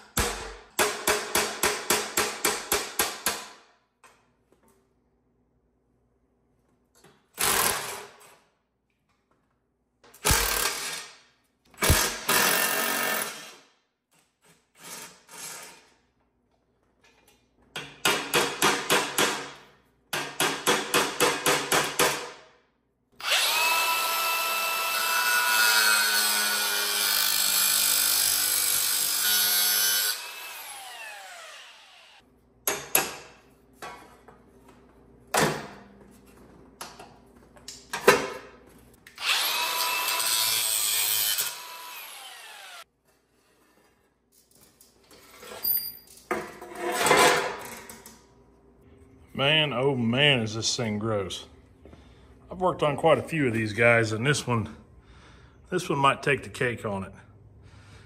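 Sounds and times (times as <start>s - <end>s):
cordless drill running: 23.2s - 25.2s, 30.1s - 32.2s, 39.2s - 40.2s, 41.4s - 42.8s.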